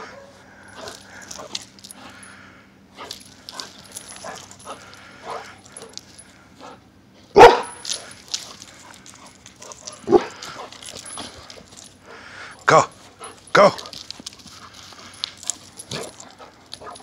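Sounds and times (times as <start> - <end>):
dog barking: 7.4 - 7.8, 10.0 - 10.4
dog yipping: 7.4 - 7.8.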